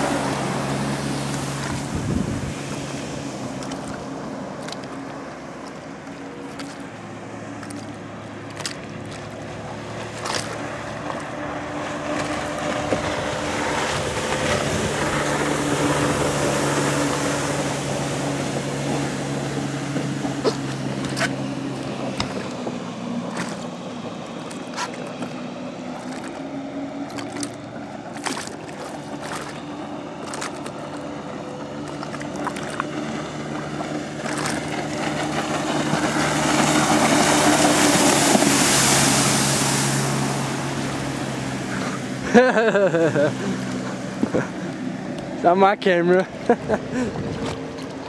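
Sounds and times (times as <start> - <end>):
watercraft engine drone: 0.0 - 48.0
jet and spray rushing: 30.8 - 42.2.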